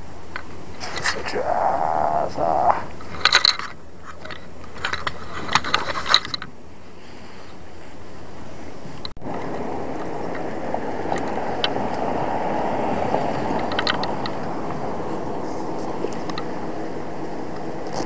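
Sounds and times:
steady outdoor noise: 0.0s - 18.0s
fishing reel clicking and rattling: 13.5s - 14.6s.

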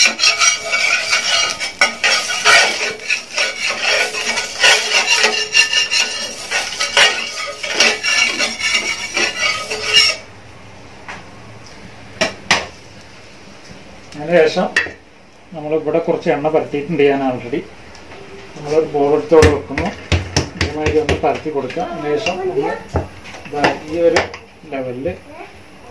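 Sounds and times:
steel ladle scraping metal griddle: 0.0s - 10.3s.

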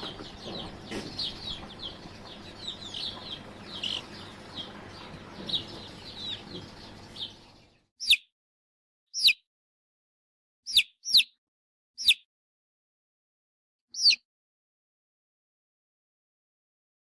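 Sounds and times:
chicks peeping: 0.0s - 8.2s, 9.2s - 9.4s, 10.7s - 11.3s, 12.0s - 12.2s, 14.0s - 14.2s.

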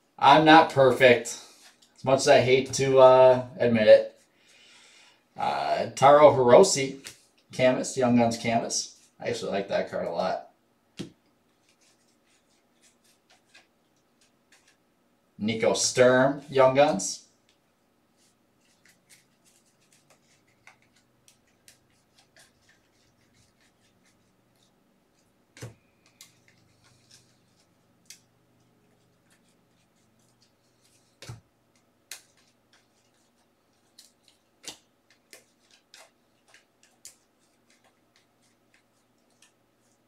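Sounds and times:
trading cards flipped by hand: 11.0s - 14.8s, 30.2s - 40.0s.

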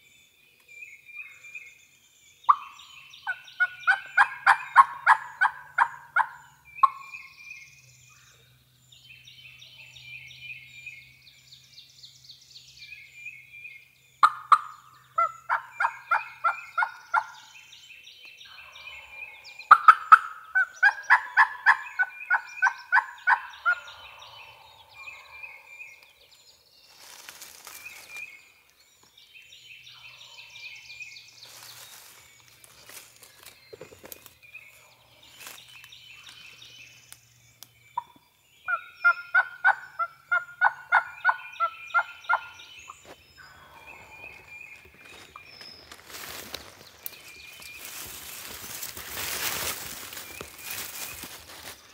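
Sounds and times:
songbirds singing: 0.0s - 51.9s
wild turkey yelping: 2.5s - 7.1s, 14.2s - 17.4s, 18.5s - 24.4s, 38.7s - 42.6s.

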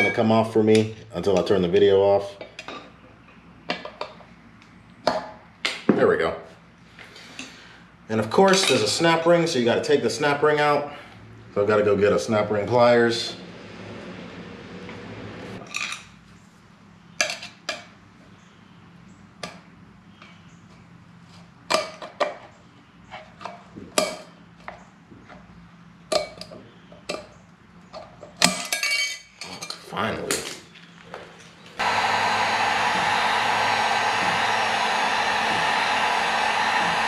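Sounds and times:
heat gun blowing: 31.8s - 37.0s.

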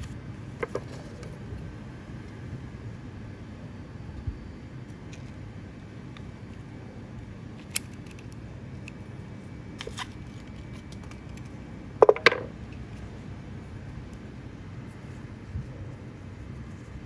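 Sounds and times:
metallic knocks on table: 12.0s - 12.5s.

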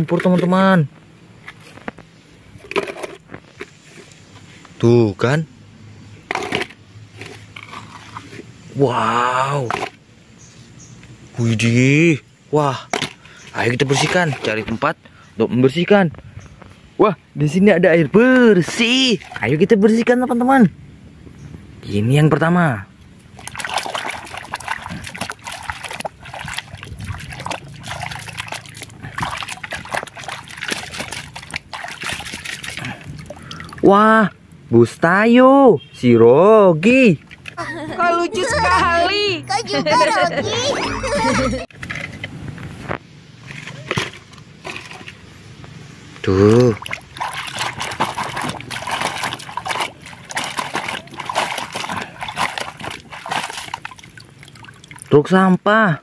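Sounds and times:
toy scrubbed through water: 6.3s - 8.5s, 23.4s - 33.2s, 46.8s - 54.2s
water splashing in a plastic bucket: 12.8s - 14.9s, 18.2s - 20.1s, 23.0s - 33.9s, 37.1s - 37.6s, 46.2s - 55.4s.

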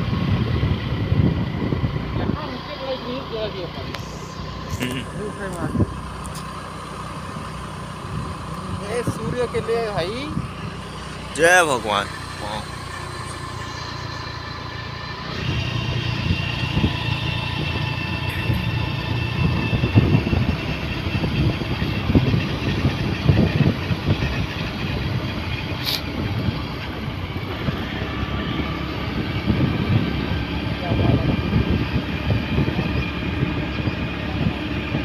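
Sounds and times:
wind on microphone: 0.0s - 2.5s, 15.3s - 35.0s
motorcycle engine running: 0.0s - 35.0s.

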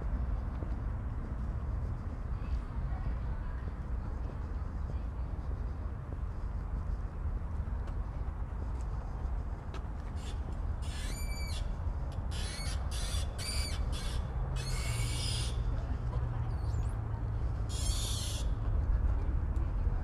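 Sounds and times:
low wind rumble: 0.0s - 20.0s
bird harsh calls: 10.2s - 11.7s, 12.3s - 15.6s, 17.7s - 18.5s.

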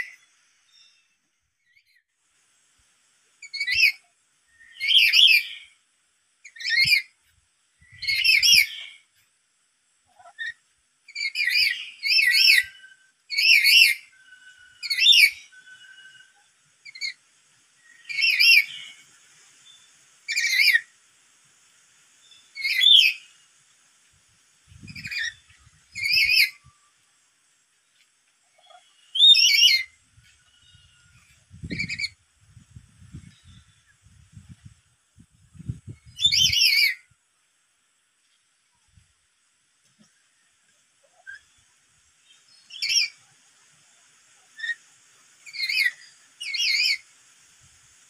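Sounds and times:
parrot shrill warbling calls: 3.4s - 4.0s, 4.6s - 5.7s, 6.4s - 7.1s, 8.0s - 8.9s, 10.2s - 17.2s, 17.8s - 19.0s, 20.3s - 20.9s, 22.6s - 23.3s, 24.9s - 26.9s, 28.6s - 32.2s, 36.1s - 37.0s, 42.7s - 43.2s, 45.4s - 47.0s.

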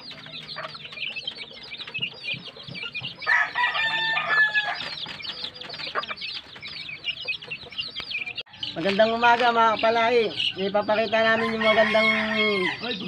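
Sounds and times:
chicks peeping: 0.0s - 13.0s
rooster crowing: 3.3s - 4.8s, 11.4s - 12.8s.

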